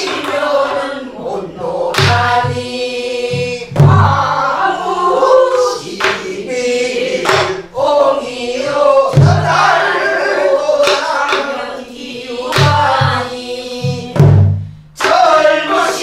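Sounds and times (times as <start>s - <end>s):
stick clacks on drum: 0.0s - 0.8s, 1.9s - 2.5s, 6.0s - 6.3s, 7.2s - 7.6s, 10.8s - 11.6s, 12.5s - 13.2s, 15.0s - 15.4s
deep drum booms: 3.3s - 4.4s, 9.2s - 9.7s, 12.6s - 14.8s.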